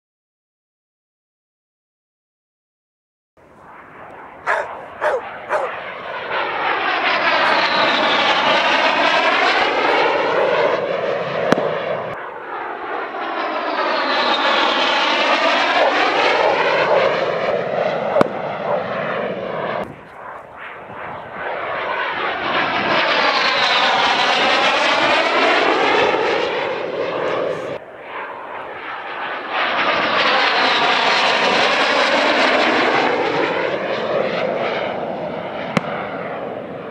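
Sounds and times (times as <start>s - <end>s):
military jet passing overhead: 3.4s - 36.9s.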